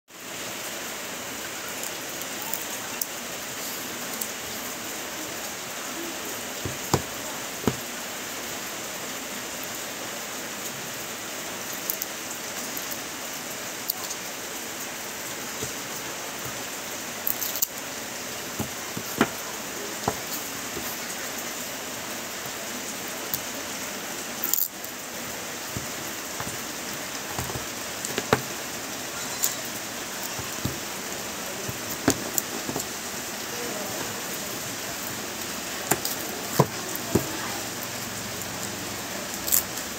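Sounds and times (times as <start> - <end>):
steady hiss: 0.1 - 39.9
fingers tapping cardboard box: 6.6 - 7.9, 18.6 - 19.4, 20.0 - 21.0, 25.7 - 26.7, 27.3 - 28.6, 30.3 - 30.9, 31.7 - 33.0, 35.9 - 37.4.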